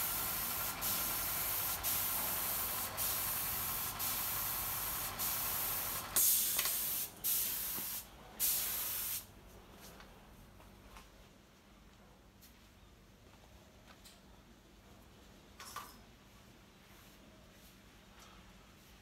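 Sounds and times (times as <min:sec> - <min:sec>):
spray gun hissing: 0:00.0 - 0:09.3.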